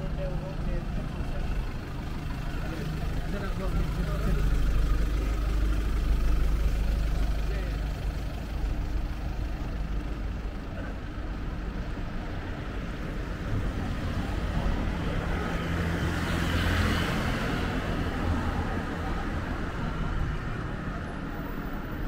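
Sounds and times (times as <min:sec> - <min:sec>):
traffic engine hum: 0:00.0 - 0:22.0
vehicle driving past: 0:13.7 - 0:20.7.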